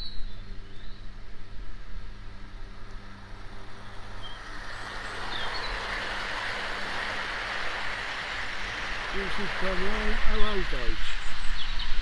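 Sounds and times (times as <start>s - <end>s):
model train whirring on rails: 4.5s - 11.2s.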